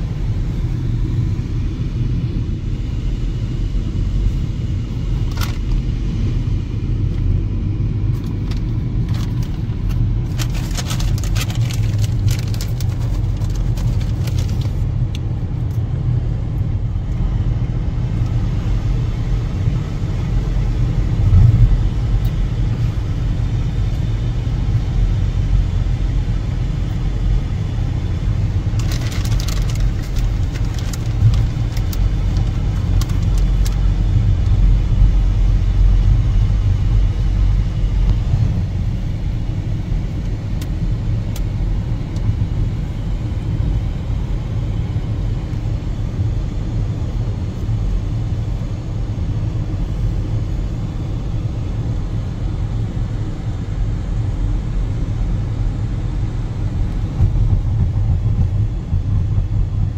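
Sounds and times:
loud low rumble: 0:00.0 - 0:45.9, 0:54.0 - 0:59.9.

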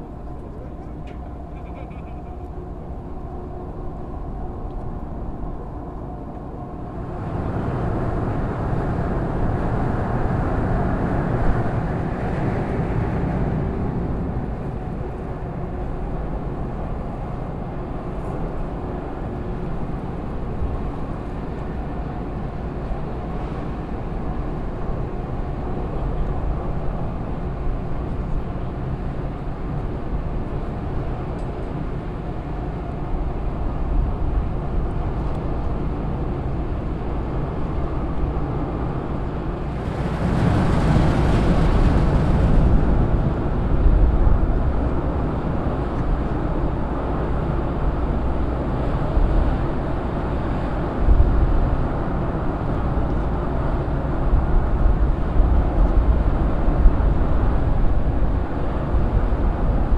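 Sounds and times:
ship machinery rumbling: 0:31.8 - 0:59.9.

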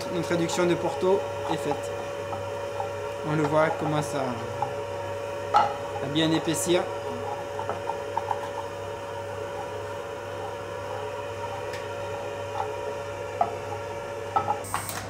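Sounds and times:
steady hum: 0:00.0 - 0:15.0
sauce simmering in a pan: 0:00.9 - 0:03.3, 0:06.8 - 0:14.4
wooden spoon tapping pan: 0:13.4 - 0:13.8.

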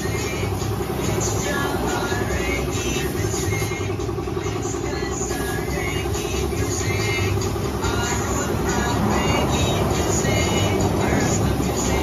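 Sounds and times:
air compressor running: 0:00.0 - 0:12.0
spray gun hissing: 0:01.7 - 0:04.1.

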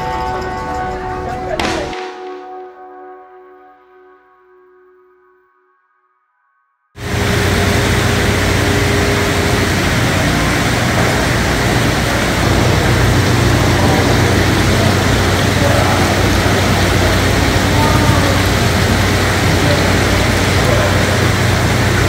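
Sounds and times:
low machine hum: 0:07.0 - 0:22.0
seawater rushing through tanks: 0:07.0 - 0:22.0.

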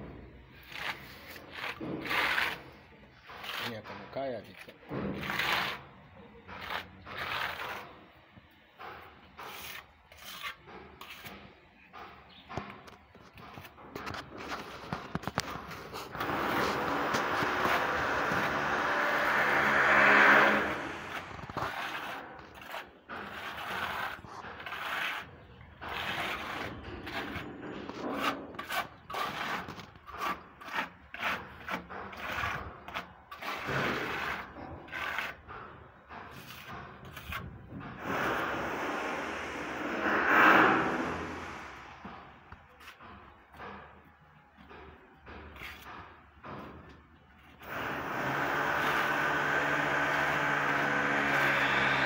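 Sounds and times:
trowel scraping paint on wall: 0:00.5 - 0:08.2, 0:08.8 - 0:43.3, 0:45.4 - 0:46.8, 0:47.4 - 0:52.0
vehicle passing: 0:38.0 - 0:42.2.

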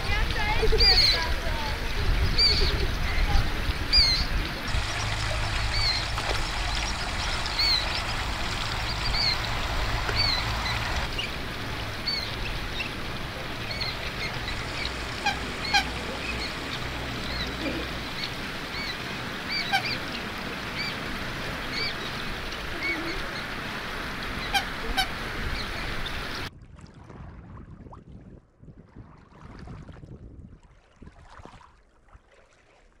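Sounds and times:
low rumble and hiss: 0:00.0 - 0:26.5
bird chicks peeping: 0:00.5 - 0:23.6.

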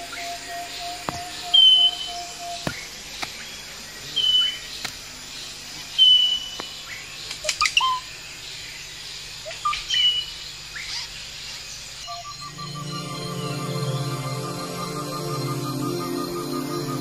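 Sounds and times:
bird whistled note: 0:00.1 - 0:02.8, 0:12.0 - 0:17.0
bird chirps and sliding notes: 0:12.0 - 0:17.0.

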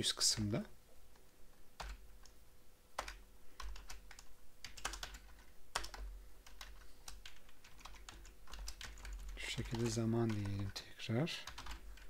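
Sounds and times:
typing on a computer keyboard: 0:01.8 - 0:02.0, 0:03.0 - 0:10.8, 0:11.4 - 0:12.0.

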